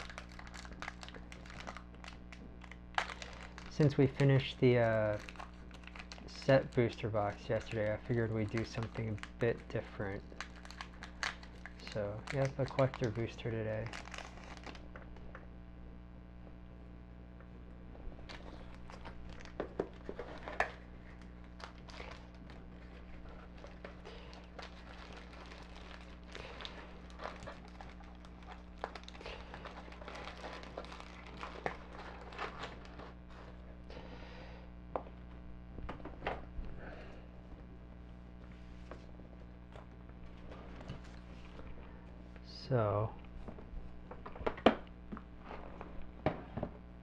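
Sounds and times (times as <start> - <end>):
foil wrapper crinkling: 0.0 - 15.4, 18.2 - 33.7
steady low hum: 0.0 - 47.0.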